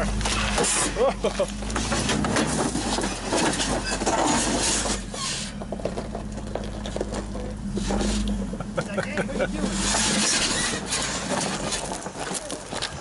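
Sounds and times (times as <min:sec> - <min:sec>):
engine running low: 0:00.0 - 0:13.0
tyres crunching over gravel: 0:00.0 - 0:13.0.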